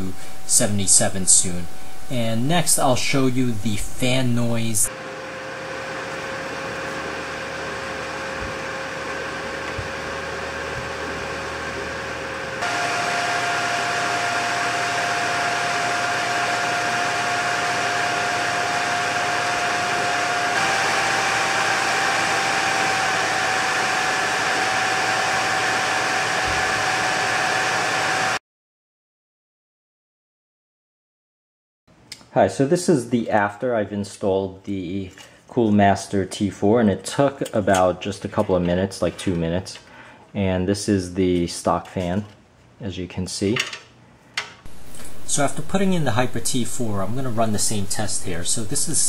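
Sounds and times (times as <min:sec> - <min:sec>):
cpu cooler fan whooshing and whining: 0:00.0 - 0:28.4, 0:44.7 - 0:49.0.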